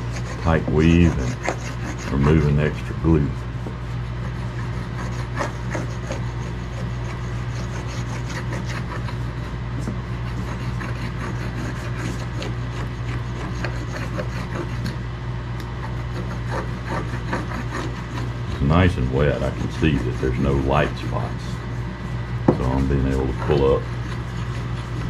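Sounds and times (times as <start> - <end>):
roller rubbing with small ticks: 0.0 - 15.0, 15.8 - 25.0
steady low hum: 0.0 - 25.0.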